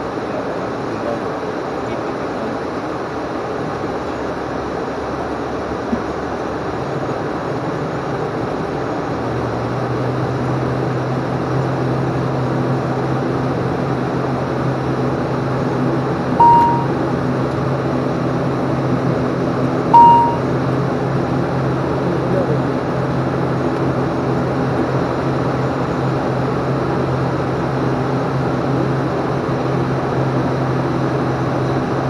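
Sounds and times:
turboprop engine drone: 0.0s - 32.0s
low hum: 16.4s - 17.0s, 20.0s - 20.5s
short electronic beeps: 16.4s - 17.0s, 20.0s - 20.4s.

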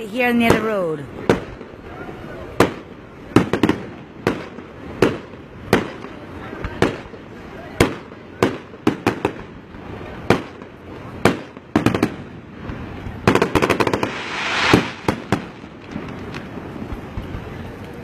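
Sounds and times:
fireworks bangs: 0.3s - 17.7s
firework hiss: 12.5s - 17.7s
crackling pops: 12.6s - 18.0s.

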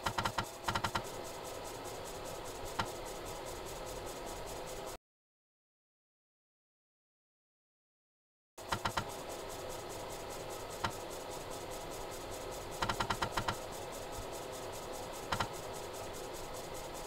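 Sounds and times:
steady hiss: 0.0s - 5.0s, 8.6s - 17.0s.

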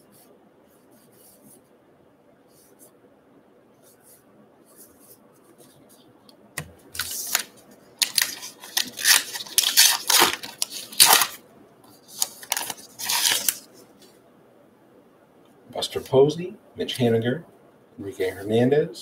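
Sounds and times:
wrapper tearing and crinkling: 7.0s - 11.4s, 12.0s - 13.7s.

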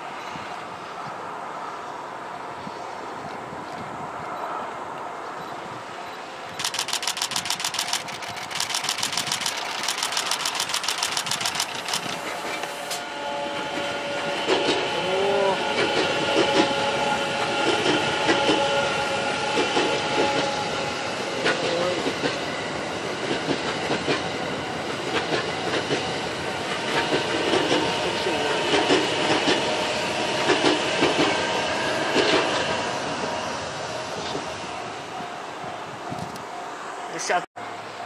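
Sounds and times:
fast run of clicks: 6.5s - 12.4s
train wheels clicking over rail joints: 6.5s - 13.0s, 23.2s - 29.7s, 30.3s - 31.4s, 32.1s - 32.7s.

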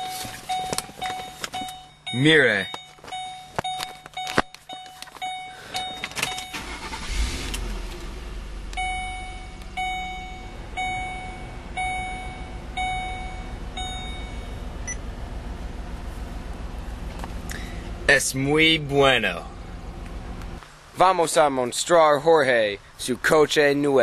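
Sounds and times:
car warning chime dinging: 0.0s - 7.7s, 8.6s - 15.1s
engine cranking and starting: 5.8s - 8.8s
engine idling: 5.8s - 20.6s.

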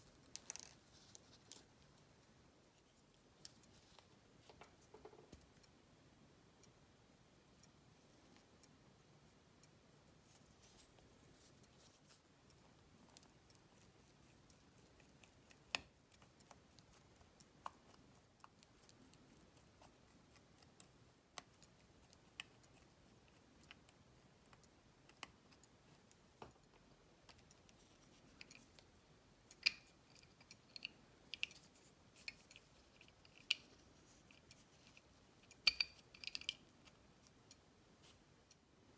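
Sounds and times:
small tools clicking on metal: 29.5s - 37.6s.

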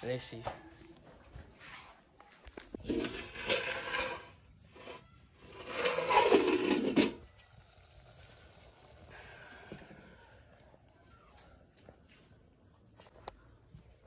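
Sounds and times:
metal pot and lid rattling: 2.8s - 7.8s.

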